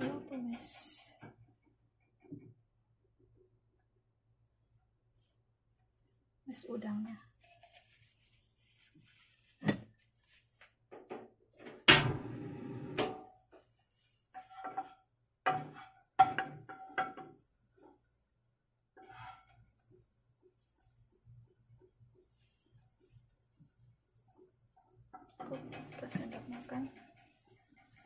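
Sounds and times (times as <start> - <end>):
knocks against a frying pan: 15.5 - 17.3.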